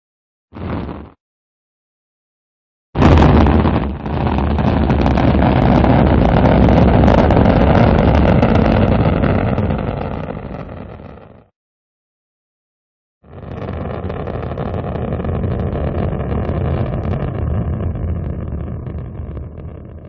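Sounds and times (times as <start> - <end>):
rocket engine roar: 3.0 - 11.4, 13.3 - 20.0.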